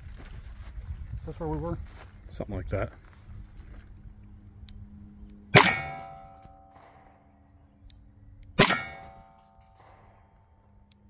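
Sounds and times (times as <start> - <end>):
revolver gunshots: 5.5 - 7.4, 8.6 - 10.4
metallic ring: 5.6 - 7.2, 8.6 - 10.1.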